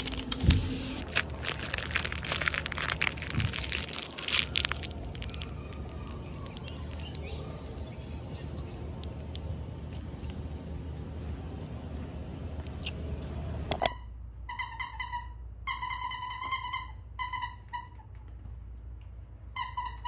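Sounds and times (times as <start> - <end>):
outdoor hiss: 0.0 - 1.4
dog toy squeaker squeaking: 1.0 - 6.6, 13.7 - 18.0, 19.6 - 20.0
sharp clicks: 13.7 - 14.0.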